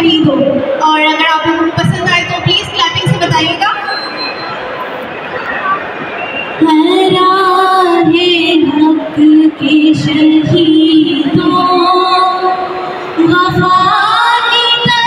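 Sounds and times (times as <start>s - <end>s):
woman singing through pa: 6.6s - 15.0s.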